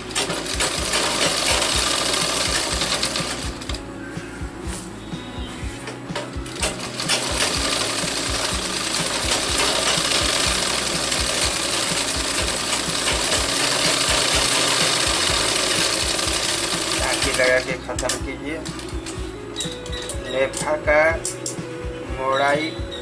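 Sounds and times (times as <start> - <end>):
sewing machine stitching: 0.0 - 3.8, 6.5 - 19.2.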